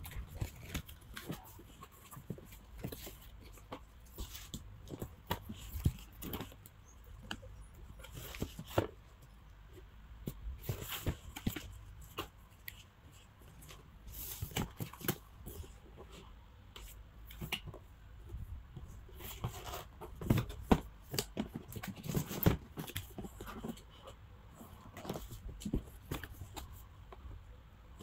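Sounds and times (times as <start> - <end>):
cardboard rustling and sliding: 8.0 - 9.0, 10.6 - 12.4, 18.8 - 24.0.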